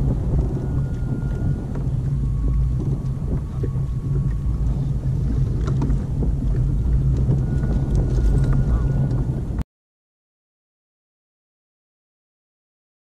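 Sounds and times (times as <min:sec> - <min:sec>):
water lapping against kayak: 0:00.0 - 0:09.6
wind rumbling on microphone: 0:00.0 - 0:09.6.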